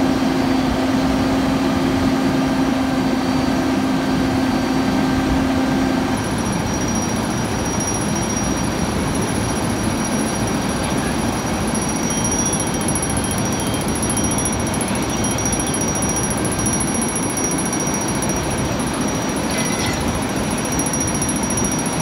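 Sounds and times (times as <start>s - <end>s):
fire engine pump running: 0.0s - 22.0s
faint short high beeps: 19.4s - 20.1s.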